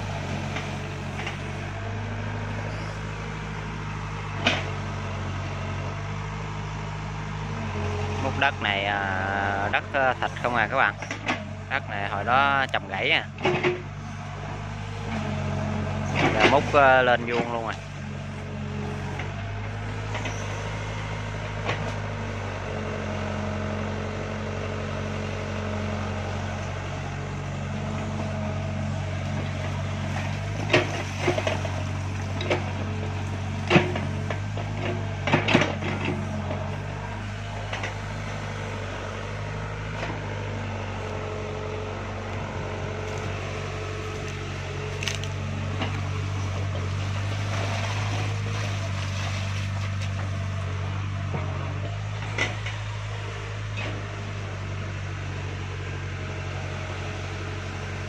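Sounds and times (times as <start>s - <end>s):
excavator diesel engine running: 0.0s - 58.0s
sharp knocks and cracks: 33.6s - 36.1s, 44.1s - 46.0s.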